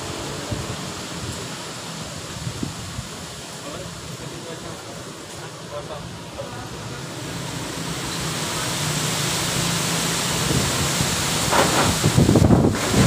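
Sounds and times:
gusty wind through tree leaves: 0.0s - 13.0s.

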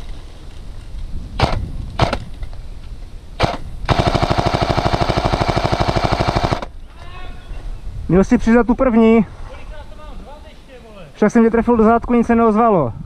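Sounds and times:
airsoft machine gun firing: 3.4s - 6.7s.

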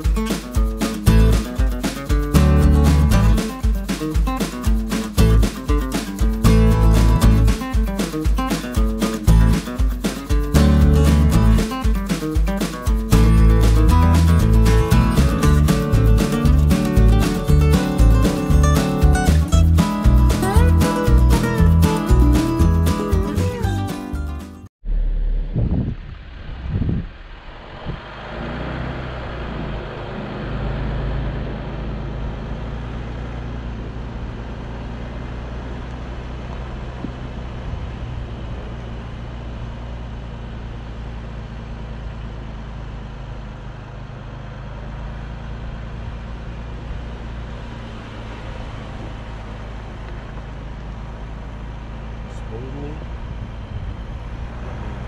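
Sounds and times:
loud thumps: 0.0s - 23.5s
vehicle engine hum: 0.0s - 55.0s.

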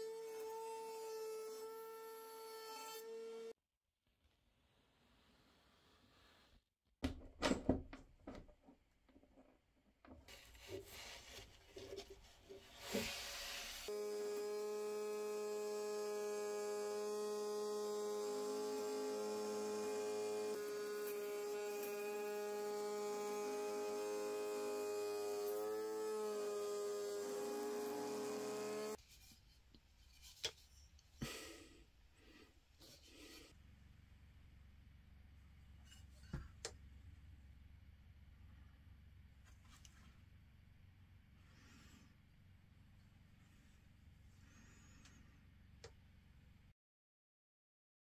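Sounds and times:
router high whine: 13.9s - 29.0s.

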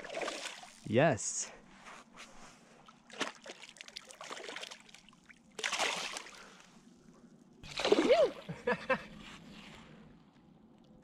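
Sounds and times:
fish splashing at surface: 3.1s - 6.6s, 7.6s - 8.4s.

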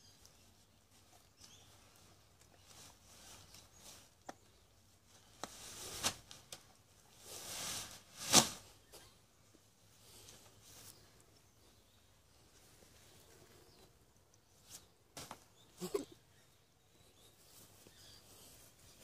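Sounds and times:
nylon fabric rustling: 7.2s - 8.7s
tent frame swishing open: 7.2s - 8.7s.

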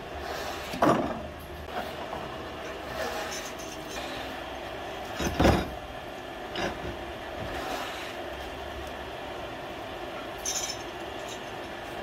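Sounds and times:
steady mechanical hum: 0.0s - 12.0s
metal clinks: 10.4s - 11.7s.

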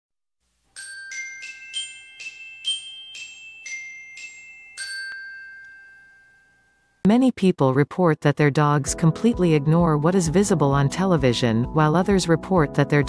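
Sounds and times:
glockenspiel jingle: 0.7s - 7.0s.

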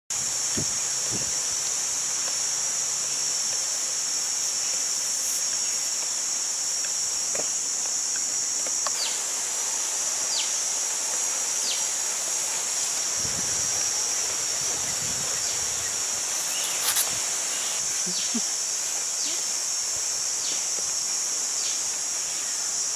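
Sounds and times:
insects droning: 0.1s - 22.9s.

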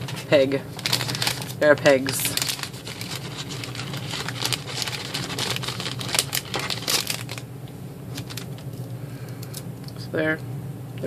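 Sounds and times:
plastic bag rustling: 0.0s - 7.5s, 8.1s - 8.8s.

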